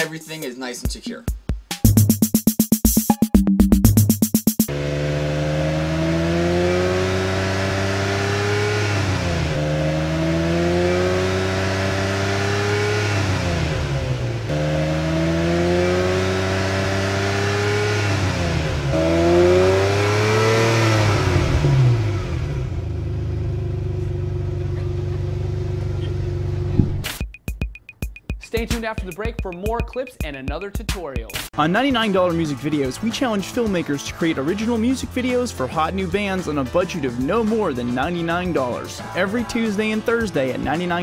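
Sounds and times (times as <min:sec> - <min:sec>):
engine accelerating through gears: 0:04.7 - 0:27.1.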